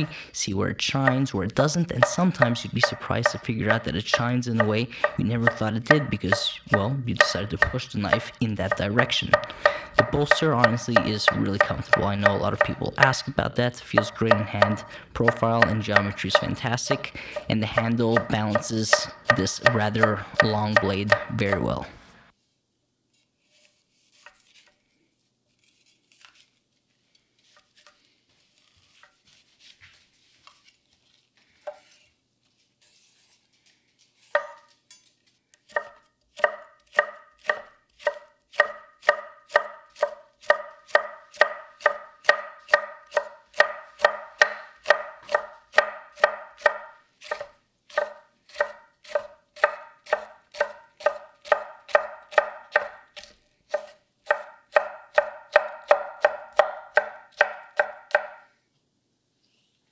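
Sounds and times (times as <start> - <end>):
knife cutting on wooden board: 4.5 - 12.8, 14.0 - 21.8, 35.7 - 58.3.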